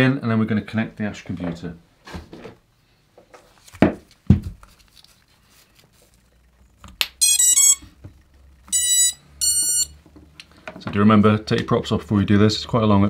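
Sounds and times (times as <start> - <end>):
drone motor power-up beeps: 6.3 - 10.0.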